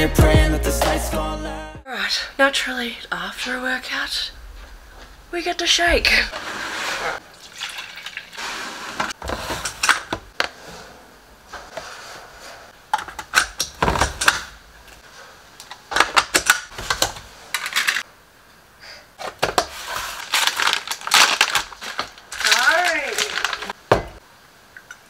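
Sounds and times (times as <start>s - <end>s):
tubs set down on wood: 23.9s - 24.2s.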